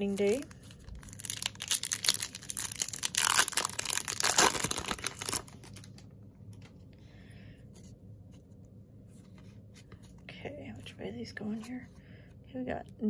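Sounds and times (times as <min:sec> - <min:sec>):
cards rustling: 0:00.0 - 0:06.0
wrapper tearing and crinkling: 0:00.0 - 0:06.0.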